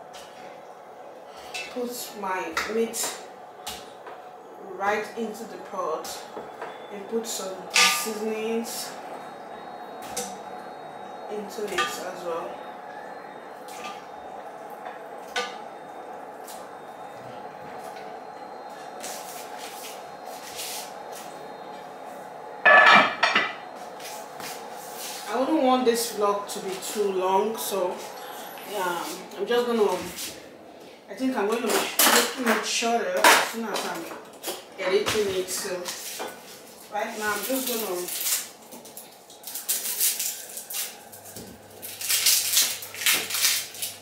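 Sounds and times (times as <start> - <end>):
low kitchen hum: 0.0 - 44.0
dish clattering in metal sink: 22.7 - 23.6.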